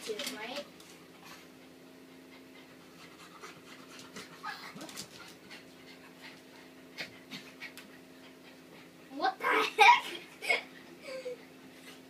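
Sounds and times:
dog panting: 1.1s - 9.1s.

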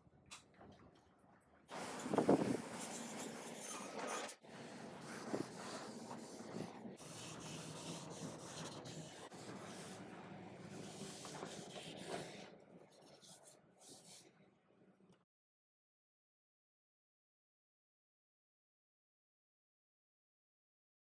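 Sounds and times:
hand rubbing on wood: 4.5s - 10.0s, 10.8s - 12.4s.

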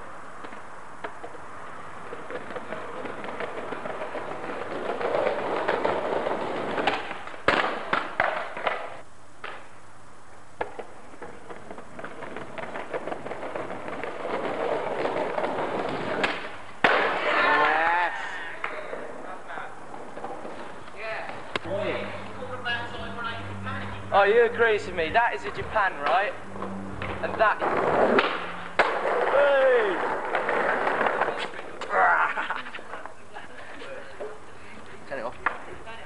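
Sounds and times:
skateboard wheels rolling on paving: 0.0s - 36.0s
skateboard clattering: 0.4s - 9.7s, 10.6s - 21.7s, 27.0s - 33.2s, 35.3s - 36.0s
skateboard landing slap: 4.9s - 9.7s, 15.0s - 17.8s, 27.0s - 32.0s.

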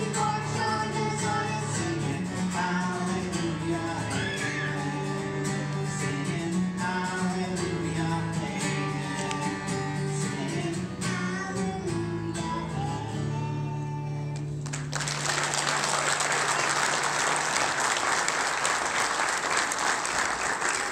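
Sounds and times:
boy and man singing duet: 0.0s - 14.4s
acoustic guitar: 0.0s - 19.8s
audience applause: 14.6s - 20.9s.

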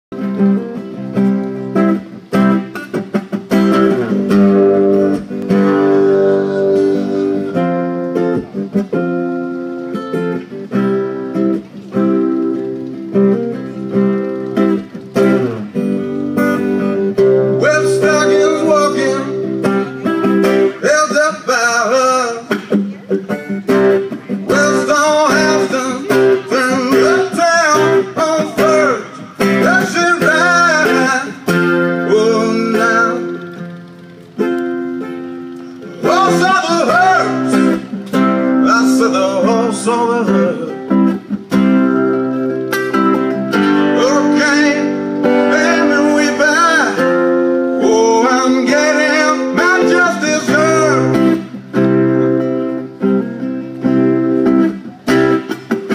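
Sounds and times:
strummed acoustic guitar: 0.1s - 55.9s
man singing: 5.5s - 7.8s, 17.2s - 22.8s, 24.3s - 33.6s, 35.8s - 41.0s, 43.5s - 51.6s.

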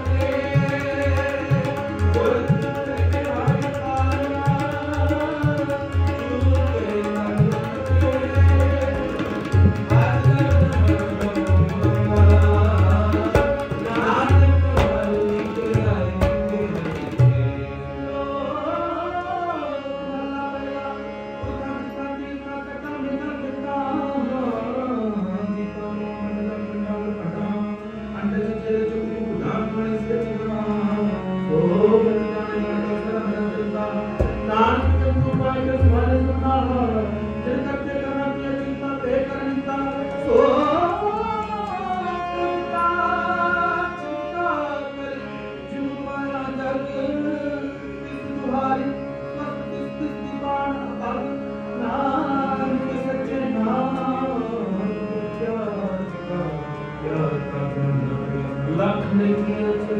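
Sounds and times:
men singing: 0.0s - 17.3s, 29.4s - 51.2s
tabla strokes: 0.0s - 17.6s, 34.2s - 35.8s
harmonium chords: 0.0s - 59.9s.

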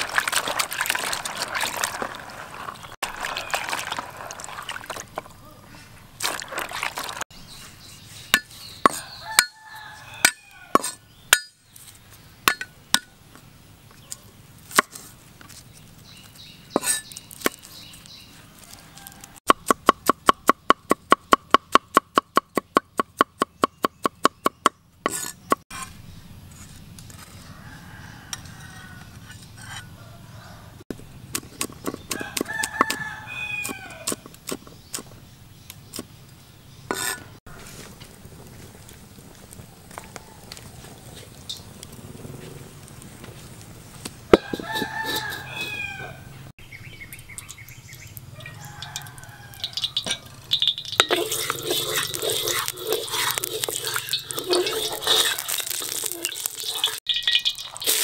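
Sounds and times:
rooster crowing: 8.9s - 10.8s, 18.6s - 19.4s, 27.4s - 30.8s, 32.2s - 34.2s, 39.9s - 41.2s, 44.3s - 46.5s, 48.3s - 50.4s.

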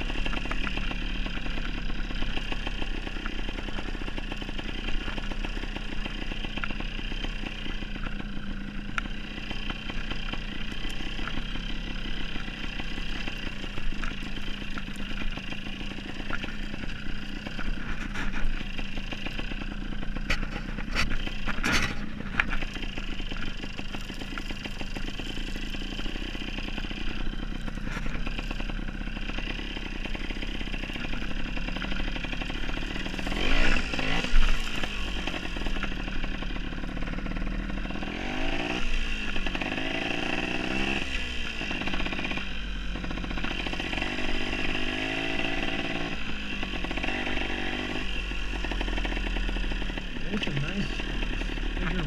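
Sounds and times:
dirt bike engine revving: 0.0s - 52.0s.

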